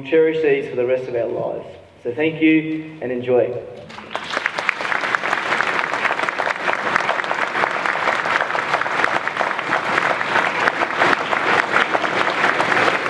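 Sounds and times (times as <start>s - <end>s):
large audience applauding: 3.9s - 13.0s.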